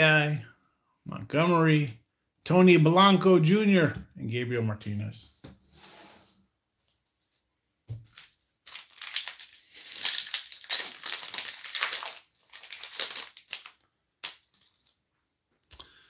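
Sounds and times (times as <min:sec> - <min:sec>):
foil wrapper crinkling: 0:08.1 - 0:15.0.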